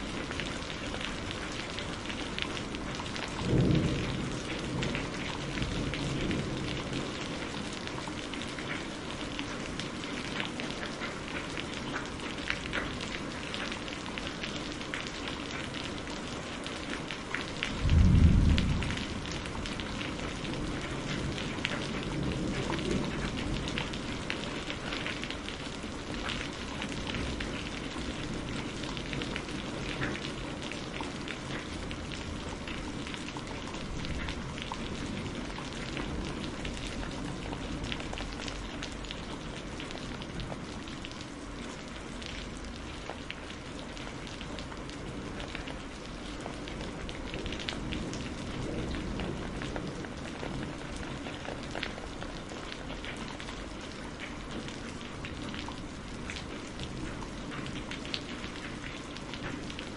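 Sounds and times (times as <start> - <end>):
rain drops hitting surface: 0.0 - 59.9
thunderclap and rumble: 2.6 - 8.0, 17.4 - 24.2.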